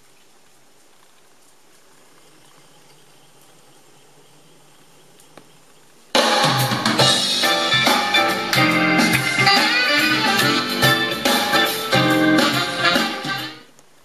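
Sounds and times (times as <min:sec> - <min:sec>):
tape hiss: 0:00.0 - 0:14.0
rock song with drums and guitar: 0:06.2 - 0:13.6.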